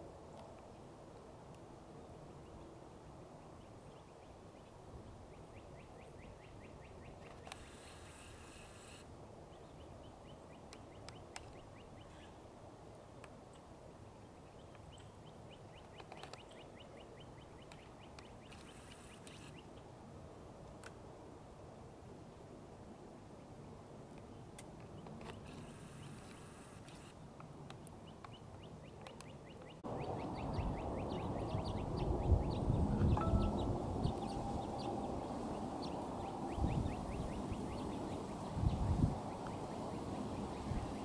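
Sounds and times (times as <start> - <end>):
low steady hum: 27.8 - 40.8.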